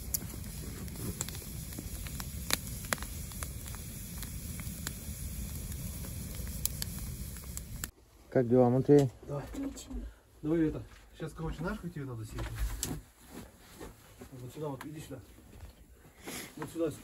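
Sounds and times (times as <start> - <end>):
fire crackles and pops: 0.0 - 7.9
campfire low rush: 0.0 - 17.0.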